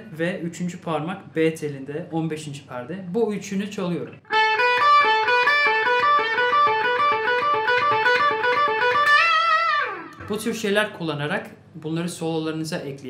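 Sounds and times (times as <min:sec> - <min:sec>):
electric guitar blues riff: 0:04.3 - 0:10.4.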